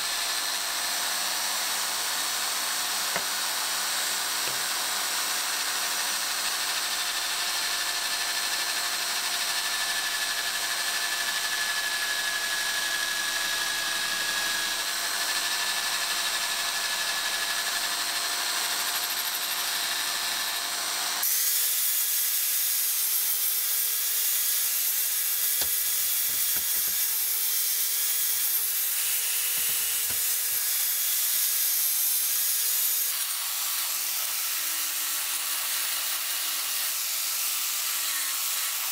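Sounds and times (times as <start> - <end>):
angle grinder grinding metal: 18.5 - 38.9.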